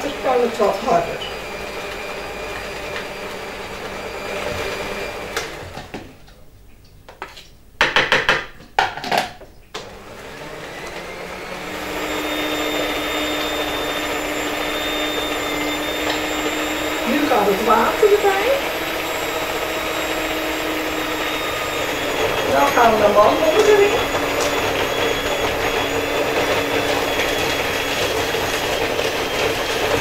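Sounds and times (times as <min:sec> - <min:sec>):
electric stand mixer running: 0:00.0 - 0:06.0, 0:09.8 - 0:30.0.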